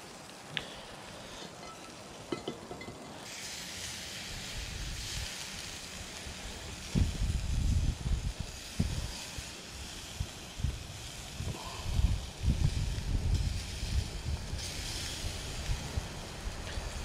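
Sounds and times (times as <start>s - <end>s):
burger patties sizzling on grill: 0.0s - 17.0s
wind buffeting microphone: 6.3s - 9.5s, 10.2s - 17.0s.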